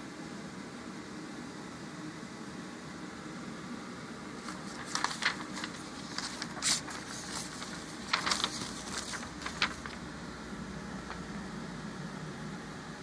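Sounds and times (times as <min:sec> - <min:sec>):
room hiss and hum: 0:00.0 - 0:13.0
paper rustling: 0:04.4 - 0:10.2.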